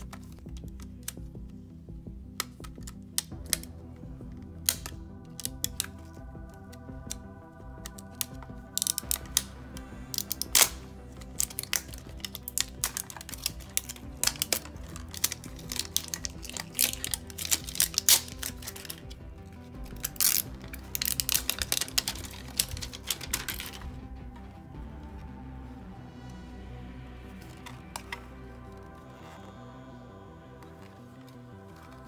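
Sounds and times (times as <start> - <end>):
background music: 0.0 - 32.0
packaging being opened: 4.5 - 24.2, 27.4 - 29.6
sharp packaging crackle: 10.1 - 24.2.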